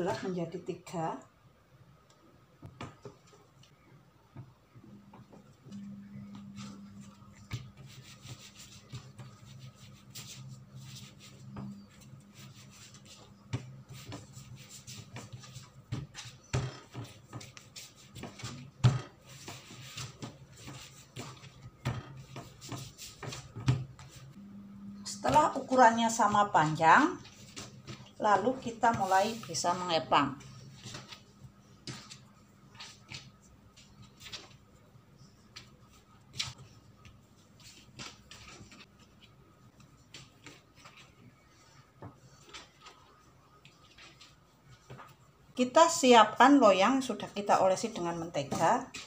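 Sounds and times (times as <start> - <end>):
low steady hum: 0.0 - 49.0
hands rubbing dough on a mat: 6.4 - 24.4, 25.3 - 46.0.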